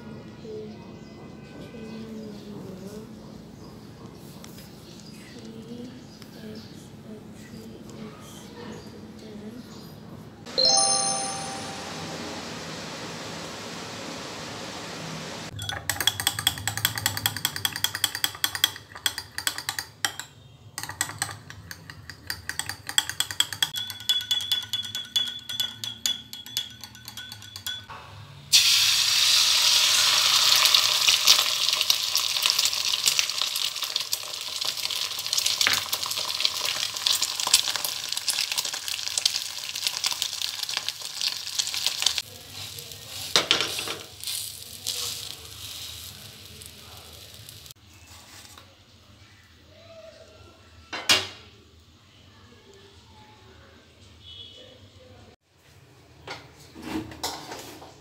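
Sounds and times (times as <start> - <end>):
metal spoon clinking in glass bowl: 15.5 - 27.9
egg sizzling in frying pan: 28.6 - 47.8.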